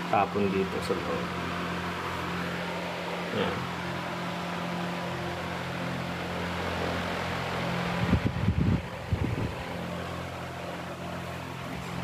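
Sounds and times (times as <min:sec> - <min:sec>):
low mechanical hum: 0:00.0 - 0:12.0.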